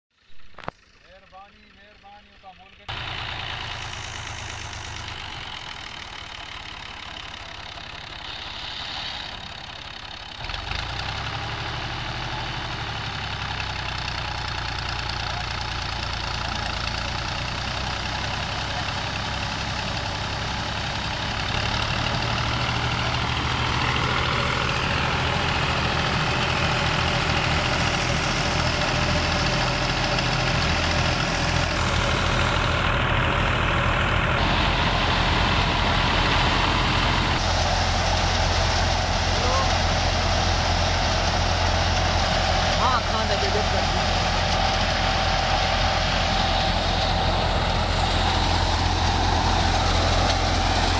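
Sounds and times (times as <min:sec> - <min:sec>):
tractor diesel engine running: 0:00.1 - 0:50.9
threshing machine churning: 0:34.0 - 0:50.9.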